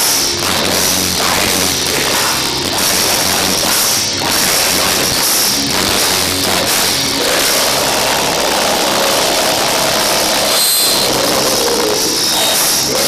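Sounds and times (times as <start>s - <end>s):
metal band playing live: 0.0s - 13.0s.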